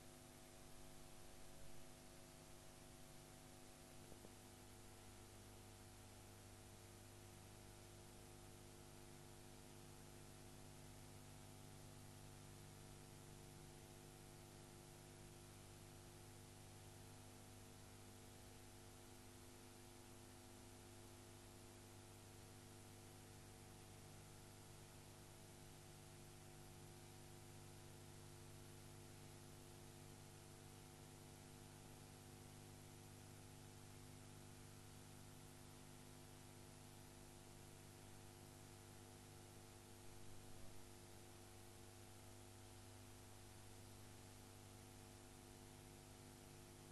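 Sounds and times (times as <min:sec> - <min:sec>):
faint electrical hum: 0:00.0 - 0:46.9.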